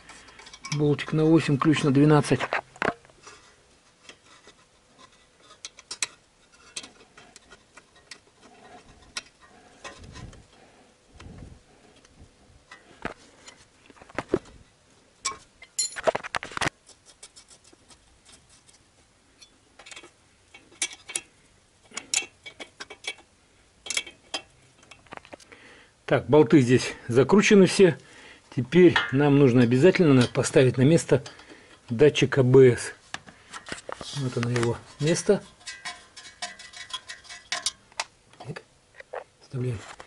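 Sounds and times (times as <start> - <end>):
tool clatter: 15.2 - 16.7, 33.7 - 37.8.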